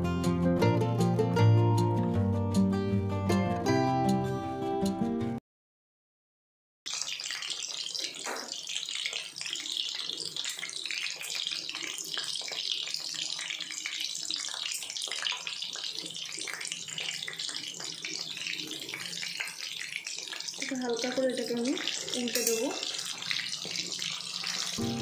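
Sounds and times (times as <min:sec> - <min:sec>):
meatballs deep-frying in oil: 0:06.9 - 0:25.0.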